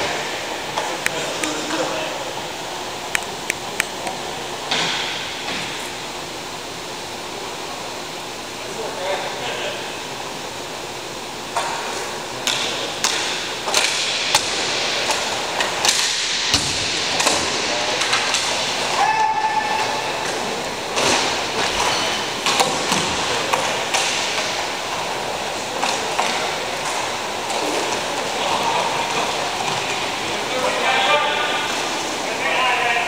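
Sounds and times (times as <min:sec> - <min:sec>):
echoing rink din: 0:12.4 - 0:25.2
pucks hitting boards: 0:12.4 - 0:30.0
hockey sticks clacking: 0:12.5 - 0:25.1.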